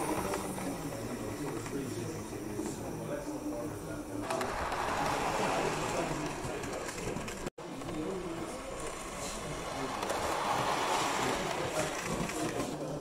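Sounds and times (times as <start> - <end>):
model train motor whirring: 4.2 - 7.4, 8.4 - 12.7.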